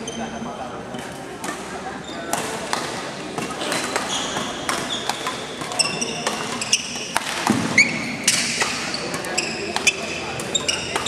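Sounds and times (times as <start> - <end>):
shuttlecocks struck by rackets: 1.0 - 11.0
shoes squeaking on wooden floor: 3.7 - 11.0.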